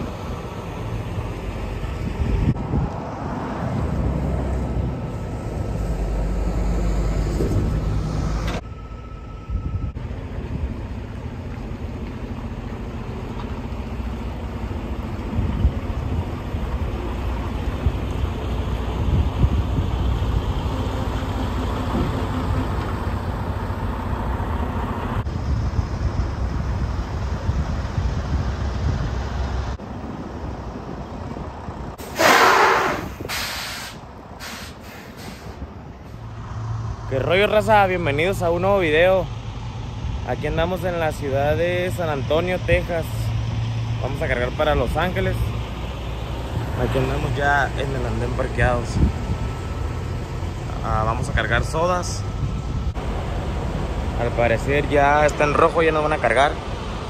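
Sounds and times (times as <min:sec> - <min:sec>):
truck diesel engine rumbling: 0:00.0 - 0:57.0
air brakes hissing: 0:32.0 - 0:36.2.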